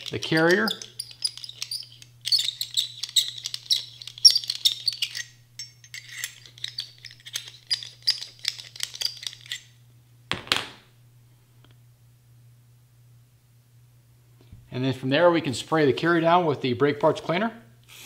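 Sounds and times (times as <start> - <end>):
metal tool scraping metal: 0.0 - 9.6.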